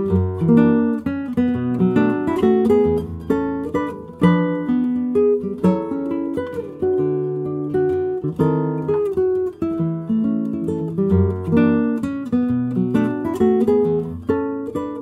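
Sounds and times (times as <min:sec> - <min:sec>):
fingerpicked classical guitar: 0:00.0 - 0:15.0.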